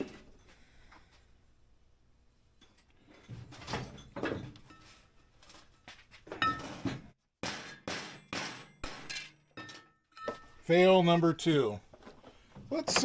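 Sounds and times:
metal tools clinking and knocking: 0:08.8 - 0:10.6.

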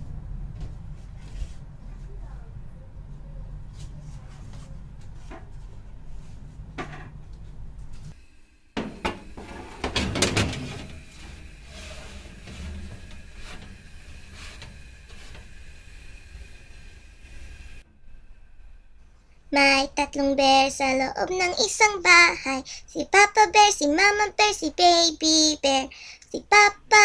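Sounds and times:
steady hum: 0:00.0 - 0:24.4
faint high whine: 0:08.2 - 0:21.2
baking tray clattering in oven: 0:08.8 - 0:15.7.

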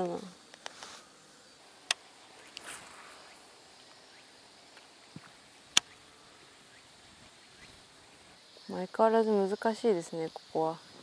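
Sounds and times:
soft rustle: 0:00.0 - 0:08.4
sharp clicks: 0:05.7 - 0:06.0.

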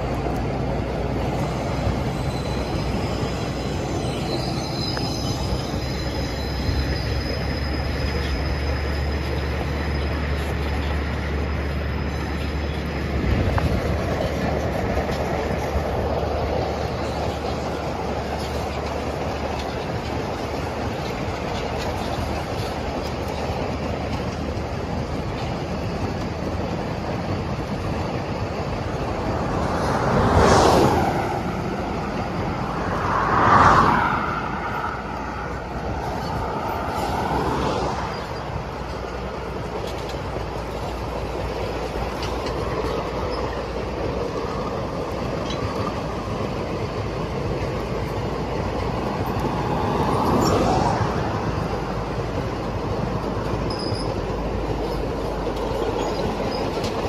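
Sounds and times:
train wheels rumbling on rail: 0:00.0 - 0:57.0
thin wheel squeal: 0:01.8 - 0:13.1, 0:53.6 - 0:57.0.

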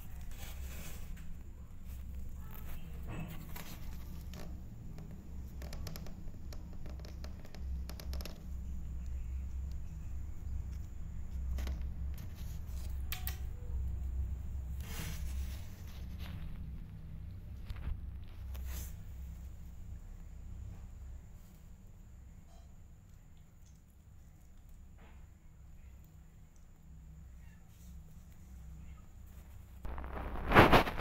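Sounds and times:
fur brushing against microphone: 0:29.9 - 0:31.0.

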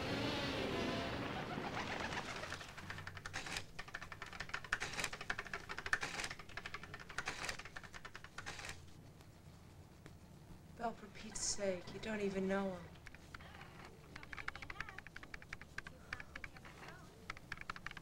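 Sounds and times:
keys clicking on office machine: 0:02.8 - 0:08.8.

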